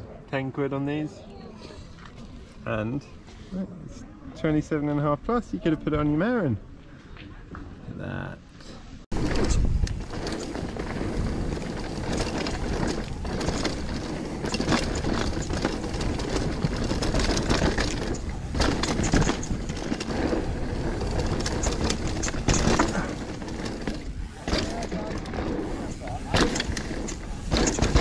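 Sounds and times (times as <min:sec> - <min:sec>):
bike rattling over bumps: 0:09.1 - 0:28.0
tyre and wind rush: 0:09.1 - 0:28.0.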